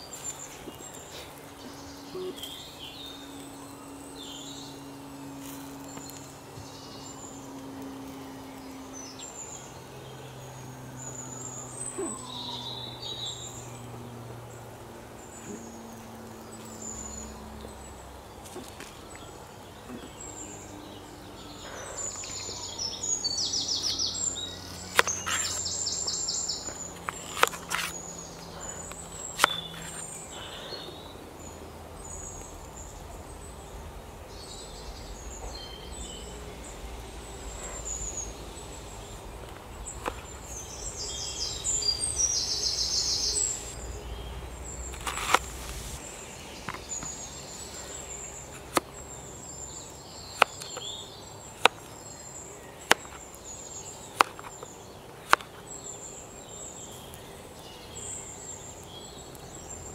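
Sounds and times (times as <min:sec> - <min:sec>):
forest birds chirping: 0:00.0 - 0:59.9.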